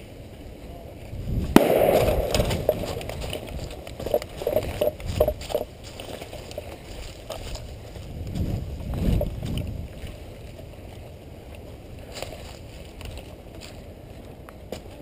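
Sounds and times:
wind rumble on microphone: 0:00.0 - 0:15.0
leaves crunching underfoot: 0:01.6 - 0:09.8.

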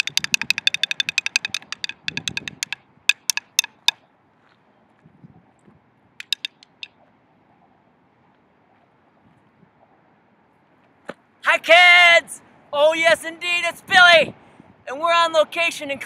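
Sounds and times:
drumsticks clicking together: 0:00.0 - 0:04.0, 0:06.2 - 0:06.9.

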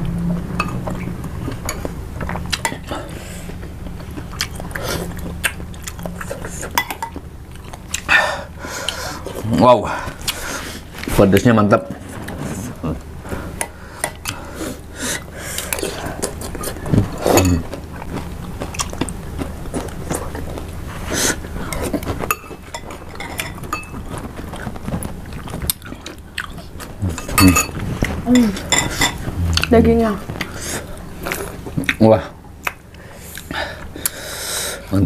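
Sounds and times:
chewing and biting meat: 0:15.8 - 0:20.9.

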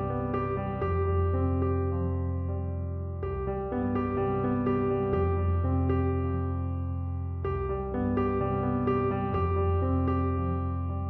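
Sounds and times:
soft piano notes: 0:00.0 - 0:11.0.

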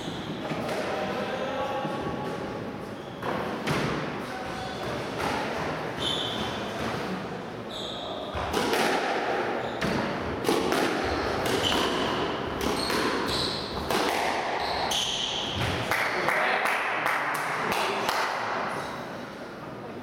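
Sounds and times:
ball smacking rackets and walls: 0:03.2 - 0:04.1, 0:08.3 - 0:15.9
shoes squeaking on wooden floor: 0:05.9 - 0:06.8, 0:11.1 - 0:13.9.

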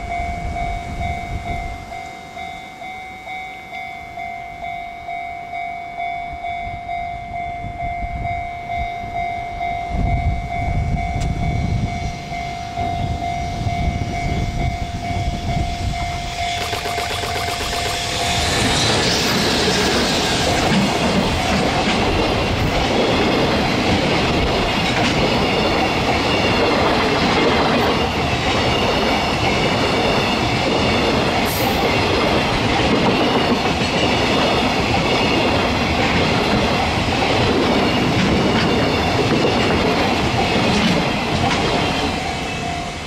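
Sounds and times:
train wheels rumbling and clattering: 0:10.0 - 0:43.0.

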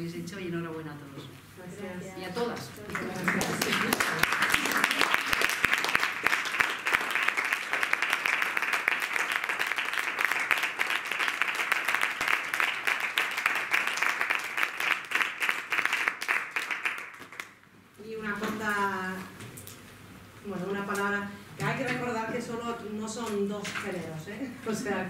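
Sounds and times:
audience applauding: 0:02.9 - 0:17.6.

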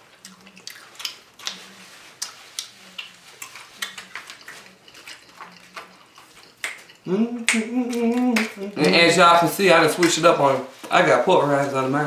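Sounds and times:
dishes and utensils clattering: 0:03.9 - 0:07.1.

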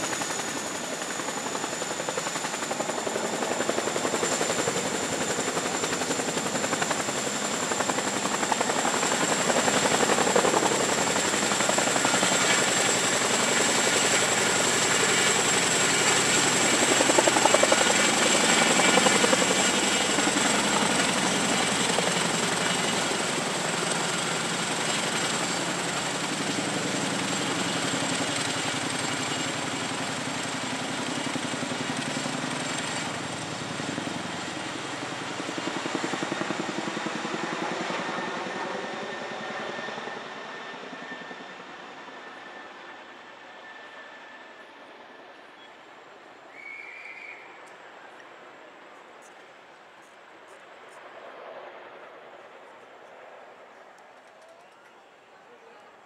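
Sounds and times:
helicopter rotor blade chop: 0:00.0 - 0:31.8
helicopter turbine whine: 0:00.0 - 0:55.7.

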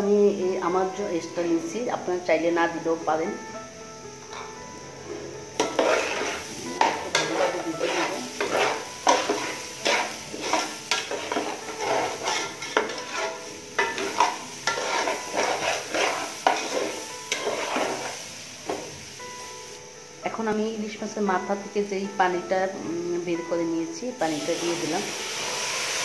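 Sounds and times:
rice frying in oil: 0:05.5 - 0:19.8, 0:24.2 - 0:26.0
metal spatula scraping a pot: 0:05.6 - 0:18.2.

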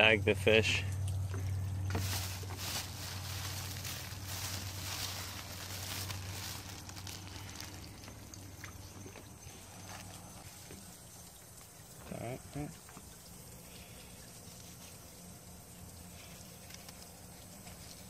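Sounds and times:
steady low hum: 0:00.0 - 0:18.0
plastic bag rustling: 0:01.9 - 0:08.2.

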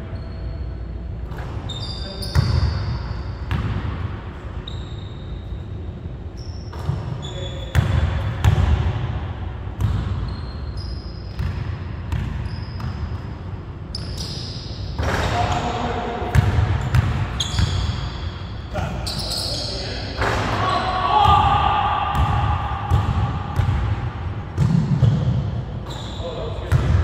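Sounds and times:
sneaker squeaks: 0:00.0 - 0:03.8, 0:04.4 - 0:08.6, 0:09.8 - 0:21.3, 0:24.6 - 0:27.0.

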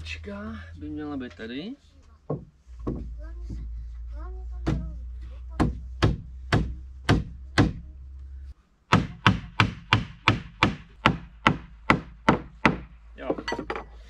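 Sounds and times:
hammer knocking on wood: 0:02.2 - 0:03.7, 0:04.6 - 0:05.0, 0:05.6 - 0:07.8, 0:08.9 - 0:13.8.

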